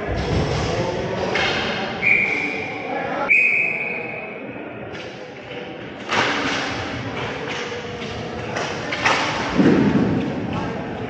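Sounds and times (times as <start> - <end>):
chatter: 0.0 - 11.0
referee whistle blasts: 2.0 - 4.4.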